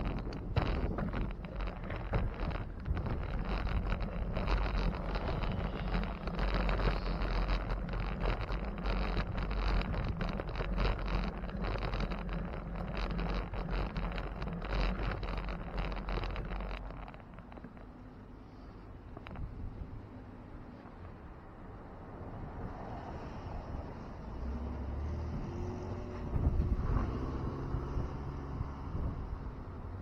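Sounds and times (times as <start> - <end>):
deep rumble: 0.0 - 20.1
wind buffeting microphone: 25.3 - 30.0.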